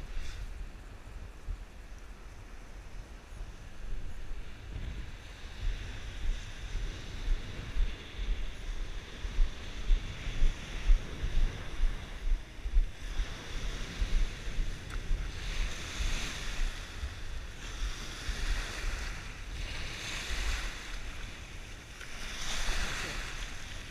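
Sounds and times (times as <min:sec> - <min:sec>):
wind buffeting microphone: 0:00.0 - 0:23.9
surf breaking on sand: 0:12.9 - 0:23.9.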